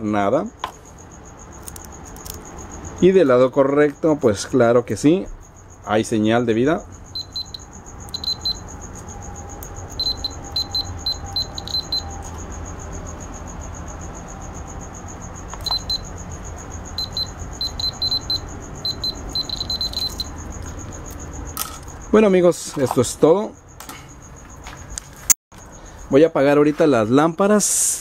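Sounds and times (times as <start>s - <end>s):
short high buzzer beeps: 10.0s - 12.2s, 15.6s - 16.1s, 17.0s - 20.3s.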